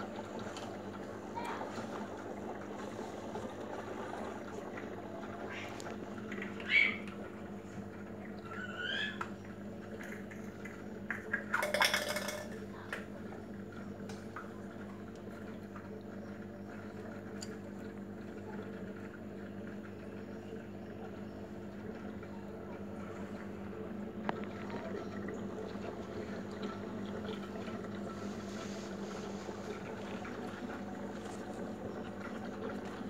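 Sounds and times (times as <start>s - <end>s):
aquarium pump humming: 0.0s - 33.0s.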